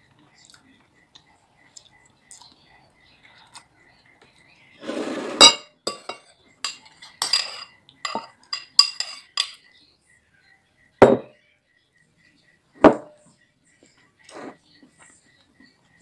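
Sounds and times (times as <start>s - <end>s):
cutlery clinking on ceramic bowl: 5.3s - 9.7s.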